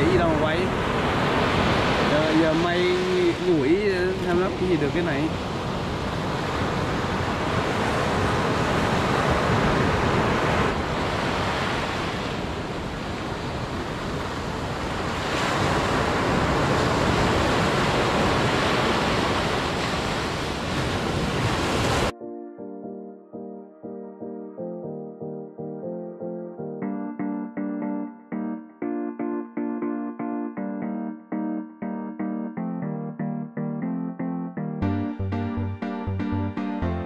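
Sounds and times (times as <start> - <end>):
piano music: 0.0 - 0.8, 2.0 - 5.3, 22.1 - 37.0
sea surf washing onto beach: 0.0 - 22.1.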